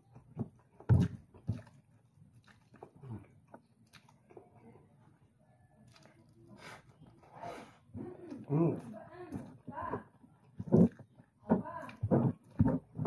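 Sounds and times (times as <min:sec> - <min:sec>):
wet chewing and lip smacking: 0:00.1 - 0:04.7, 0:05.8 - 0:07.3.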